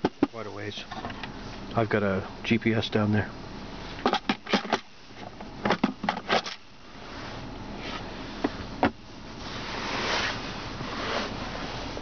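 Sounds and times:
armrest lid shutting knocks: 8.4s - 9.0s.

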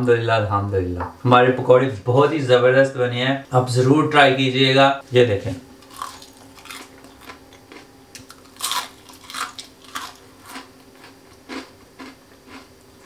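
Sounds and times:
crunching crispy fried food: 5.8s - 13.0s.

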